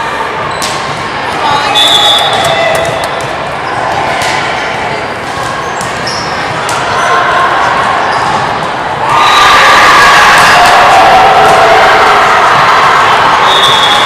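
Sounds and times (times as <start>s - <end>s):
sneaker squeaks on hardwood: 5.6s - 6.5s
people shouting: 9.0s - 14.0s.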